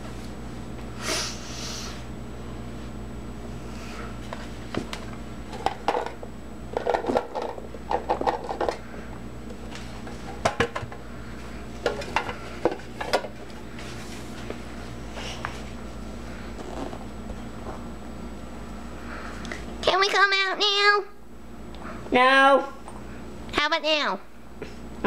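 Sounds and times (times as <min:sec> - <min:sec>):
plastic toys clattering: 0:05.6 - 0:08.8.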